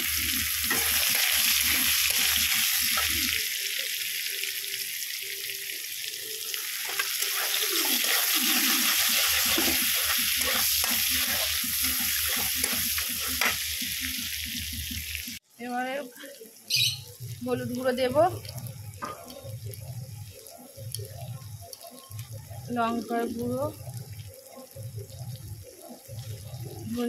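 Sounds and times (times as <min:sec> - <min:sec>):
garlic sizzling in hot oil: 0:00.0 - 0:27.0
metal spatula scraping: 0:00.6 - 0:03.4, 0:06.8 - 0:13.7.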